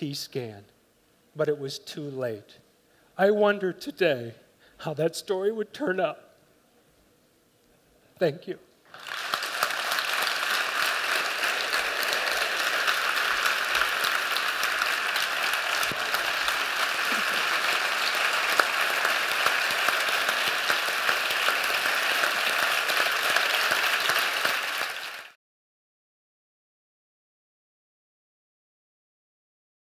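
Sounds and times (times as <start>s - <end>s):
audience applauding: 8.9s - 25.4s.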